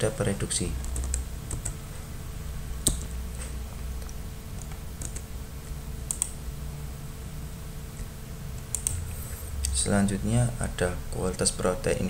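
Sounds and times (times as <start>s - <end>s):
low steady hum: 0.0s - 12.0s
computer key clicks: 6.1s - 6.4s, 8.6s - 9.0s.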